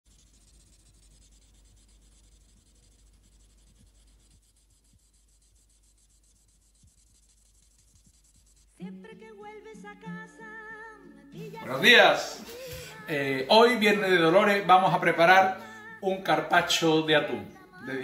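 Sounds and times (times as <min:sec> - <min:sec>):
faint hiss: 0:00.1 - 0:18.0
music: 0:08.8 - 0:18.0.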